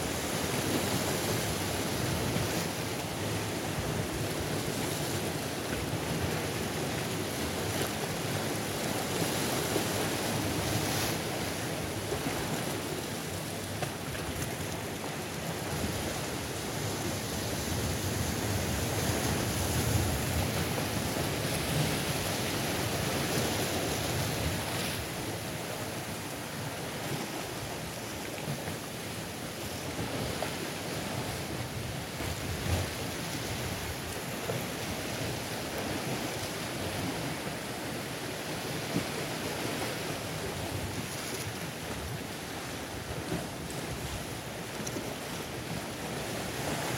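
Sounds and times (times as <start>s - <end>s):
sea waves breaking on rocks: 0.0s - 46.9s.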